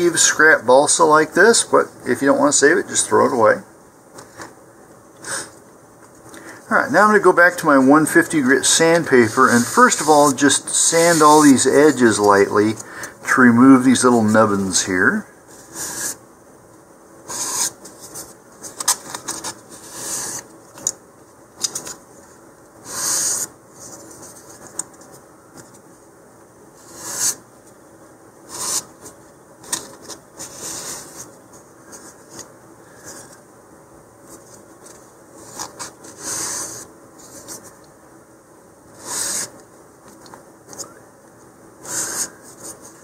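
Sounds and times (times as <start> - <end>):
sandpaper rubbing wood: 17.3 - 17.8, 41.8 - 42.3.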